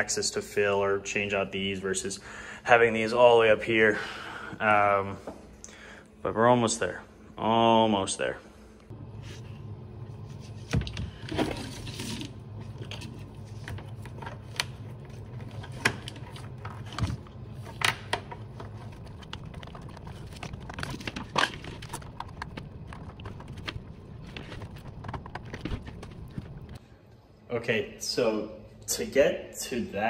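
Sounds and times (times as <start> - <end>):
steady low hum: 0.0 - 30.0
hands rubbing power cables: 12.8 - 26.8.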